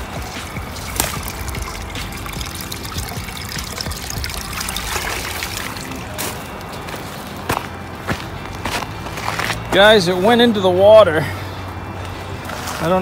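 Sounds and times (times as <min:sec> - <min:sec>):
water splashing and trickling: 0:00.0 - 0:07.5.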